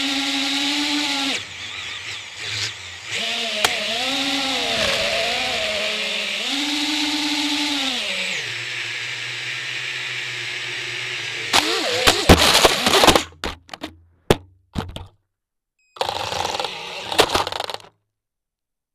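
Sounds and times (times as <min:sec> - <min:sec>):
drone motors and propellers whining: 0:00.5 - 0:12.2.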